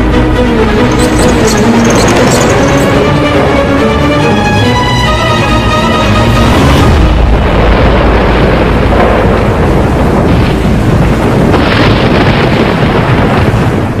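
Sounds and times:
deep rumbling thunder: 6.5s - 14.0s
thunder claps: 7.0s - 14.0s.

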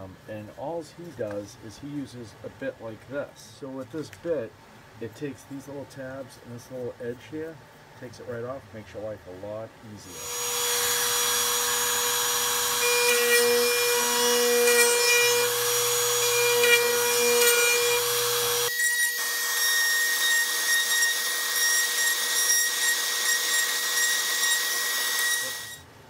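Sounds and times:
router bit cutting hiss: 10.0s - 25.8s.

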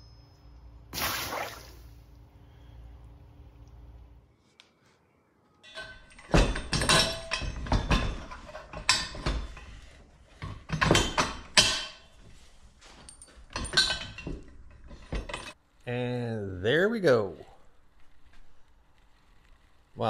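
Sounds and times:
metal bars clanking on workbench: 5.7s - 9.5s.

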